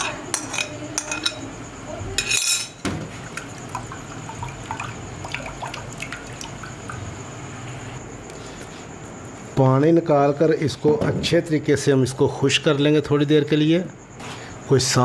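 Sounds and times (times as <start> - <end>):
water dripping: 3.2 - 7.2.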